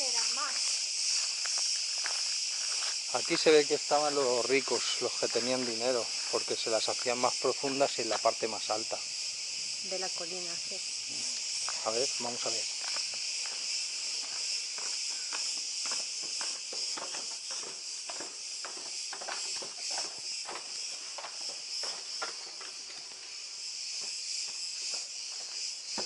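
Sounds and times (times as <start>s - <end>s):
footsteps on stone steps and dirt: 0.0s - 3.5s, 11.1s - 26.0s
cicadas droning: 0.0s - 26.0s.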